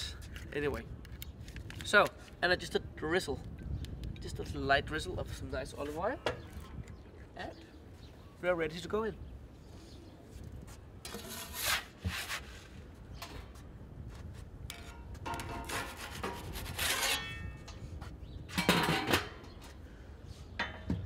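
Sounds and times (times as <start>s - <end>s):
metal peel scraping steel table: 11.0s - 12.4s, 14.7s - 17.6s
metal grill lid clatter: 18.5s - 19.6s.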